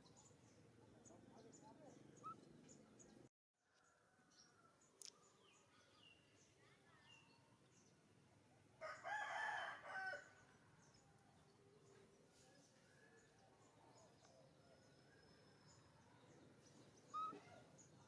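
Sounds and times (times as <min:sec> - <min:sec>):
faint bird chirps: 0:00.0 - 0:08.0, 0:10.3 - 0:18.0
rooster crowing: 0:08.8 - 0:10.3.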